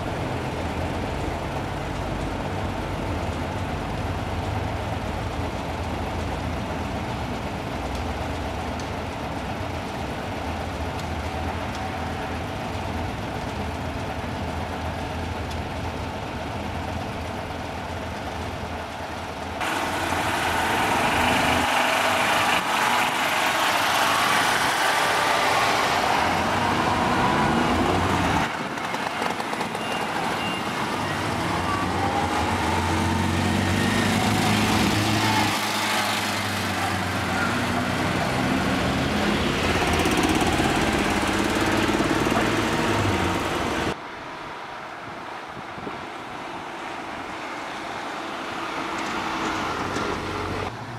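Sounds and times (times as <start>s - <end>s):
car engines idling: 0.0s - 29.8s
car engines revving: 19.6s - 44.0s.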